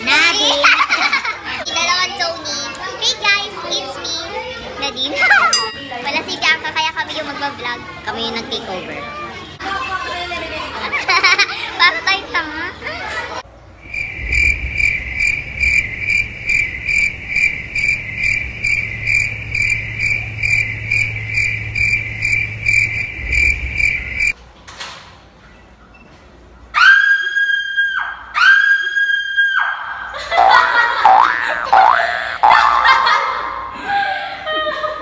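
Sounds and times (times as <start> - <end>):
cricket chirp sound effect: 13.8 - 24.4.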